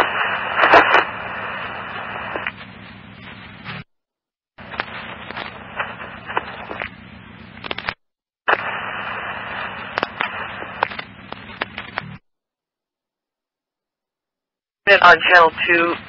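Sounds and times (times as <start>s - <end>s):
low steady hum: 0.0s - 3.9s, 4.6s - 7.9s, 8.6s - 12.2s
radio static hiss: 0.0s - 3.9s, 4.6s - 12.2s, 14.9s - 16.0s
sharp static crackles: 0.0s - 3.9s, 4.6s - 12.2s, 14.9s - 16.0s.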